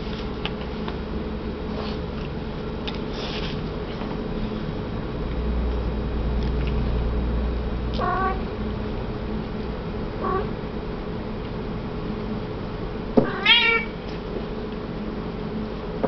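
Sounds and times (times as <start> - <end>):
cat meowing: 8.0 - 8.4, 10.2 - 10.5, 13.2 - 14.0.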